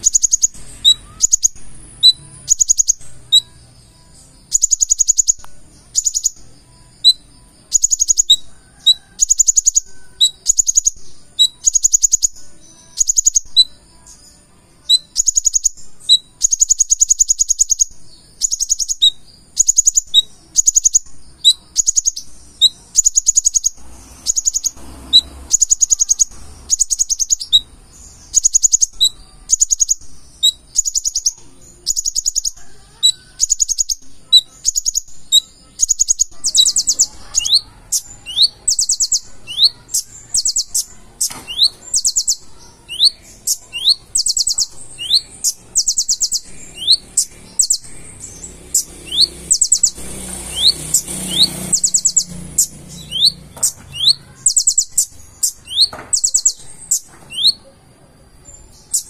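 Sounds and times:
rising bird whistle: 0:00.0 - 0:03.5, 0:48.7 - 0:57.6
bird trilling song: 0:00.0 - 0:59.0.

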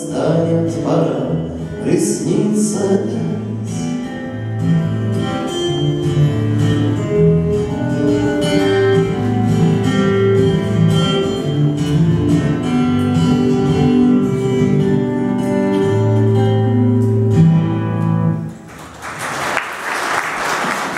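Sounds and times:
acoustic guitar playing: 0:00.0 - 0:18.7
audience applause: 0:18.6 - 0:20.9.

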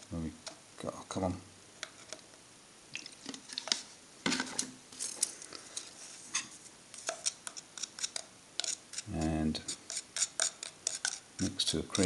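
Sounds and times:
metal spatula scraping plastic pot: 0:05.7 - 0:12.0.

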